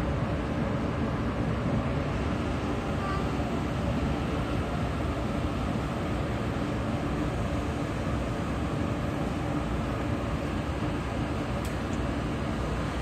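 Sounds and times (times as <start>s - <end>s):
electric train humming: 0.0s - 13.0s
faint click: 11.6s - 12.0s.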